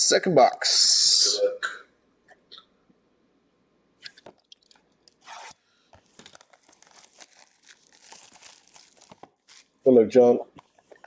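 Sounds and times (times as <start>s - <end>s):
plastic shrink wrap crinkling: 4.1s - 9.9s.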